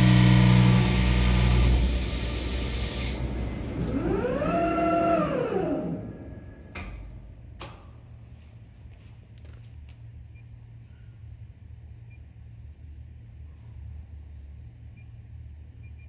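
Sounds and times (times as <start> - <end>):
lathe cutting hum: 0.0 - 6.4
motor whine: 0.0 - 6.8.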